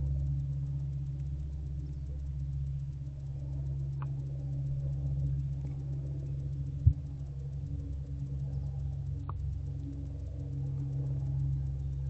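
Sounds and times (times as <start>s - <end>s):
low electrical hum: 0.0s - 12.0s
faint click: 8.9s - 9.6s.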